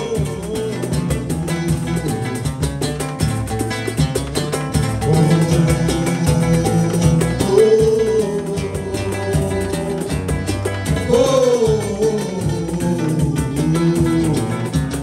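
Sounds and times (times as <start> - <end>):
man singing: 0.0 - 3.0, 4.8 - 15.0
acoustic guitar strumming: 0.0 - 15.0
hand drum beating: 0.0 - 15.0.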